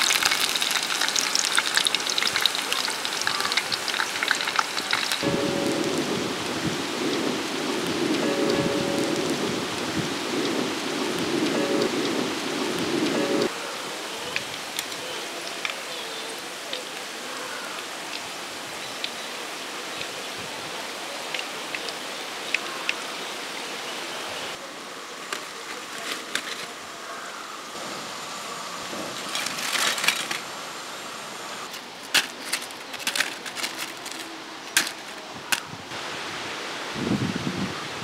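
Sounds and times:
small crackles and clicks: 0.0 - 5.2, 31.7 - 35.6
hot oil sizzling: 0.0 - 13.6
rustles: 25.1 - 36.2.

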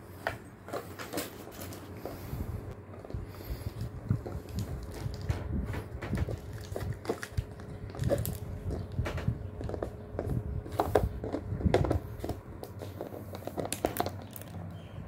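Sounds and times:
dog chewing plastic bottle: 6.2 - 14.8.

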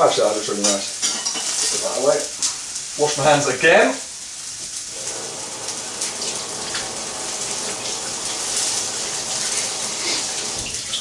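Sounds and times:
tap water splashing into sink: 5.0 - 11.0.

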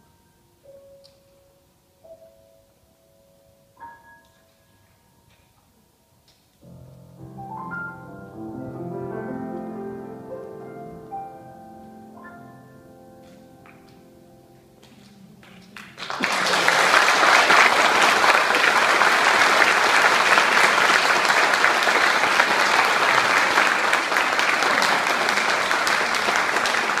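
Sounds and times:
audience applauding: 14.8 - 27.0.

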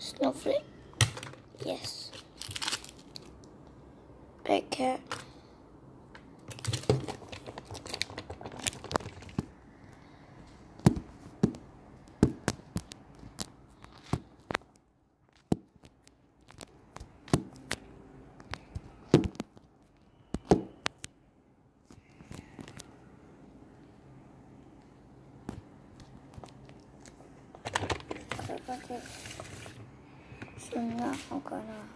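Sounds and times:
plastic packaging crinkling: 1.6 - 3.5, 6.4 - 9.6.

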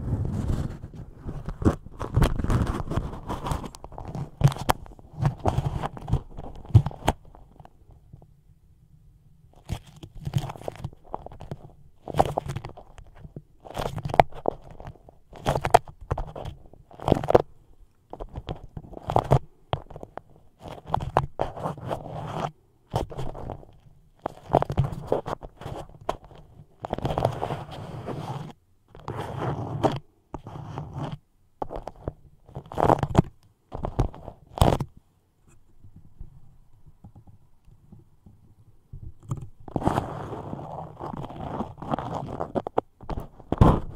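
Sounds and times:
wax wrap crinkling and crackling: 0.1 - 7.8, 9.6 - 22.1, 22.9 - 28.0, 39.2 - 43.9.

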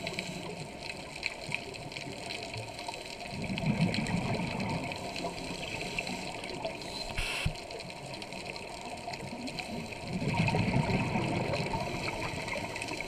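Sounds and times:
underwater bubbling rumble: 0.0 - 6.8, 7.7 - 13.0
brief hiss: 6.9 - 7.6.

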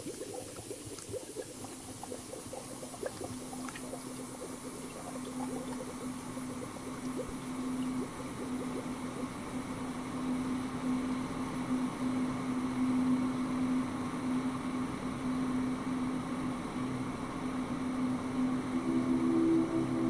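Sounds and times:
low electronic drone: 18.7 - 20.0.

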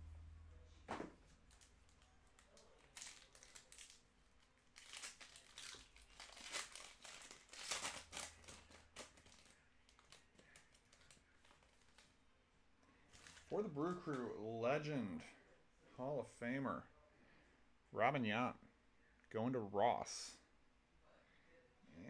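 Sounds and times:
foil wrapper crinkling and tearing: 1.3 - 12.1, 13.1 - 13.6.

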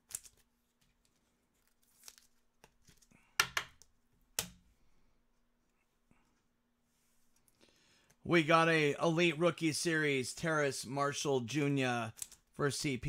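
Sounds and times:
trading cards flipped by hand: 0.0 - 4.6.

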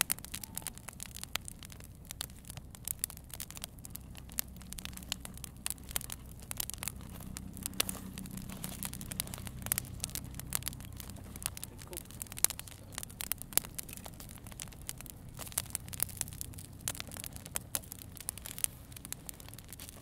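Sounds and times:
campfire crackling: 0.0 - 20.0
low steady hum: 0.0 - 20.0.

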